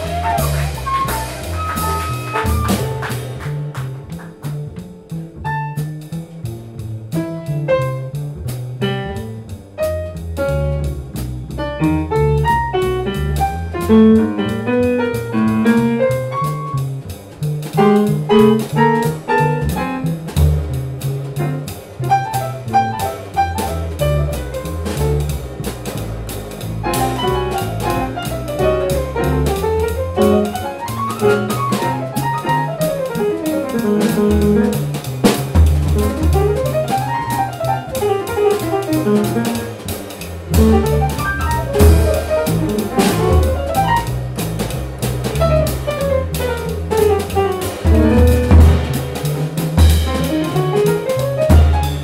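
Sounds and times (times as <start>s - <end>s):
piano playing quick runs: 0.0s - 6.4s, 7.1s - 8.2s, 8.8s - 52.0s
double bass: 0.0s - 52.0s
drum kit with cymbal strokes: 0.0s - 52.0s.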